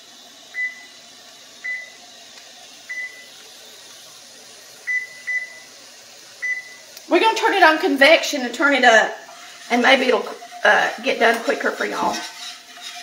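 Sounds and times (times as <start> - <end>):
oven control panel beeping: 0.5 - 1.0, 1.6 - 2.0, 2.8 - 3.4, 4.8 - 5.8, 6.4 - 7.0.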